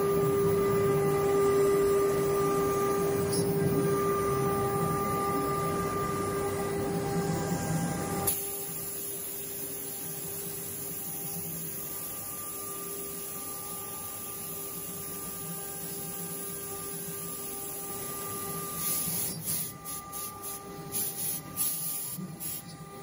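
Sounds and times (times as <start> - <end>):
router spindle whine: 0.0 - 8.7
bit cutting board hiss: 18.8 - 22.8.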